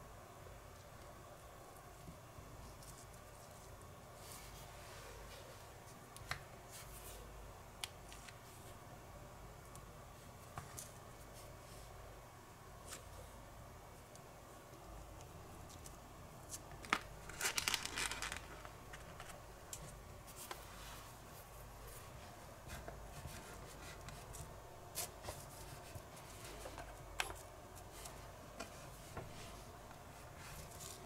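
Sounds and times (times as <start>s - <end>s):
crinkly rustle: 16.8s - 19.4s, 23.2s - 31.0s.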